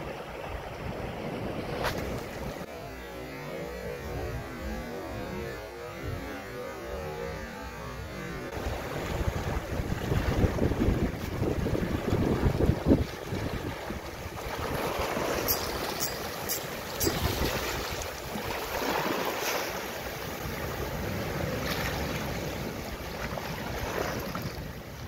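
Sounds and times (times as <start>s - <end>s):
wind rumbling on microphone: 0.0s - 25.0s
sea surf washing over rocks: 8.6s - 25.0s.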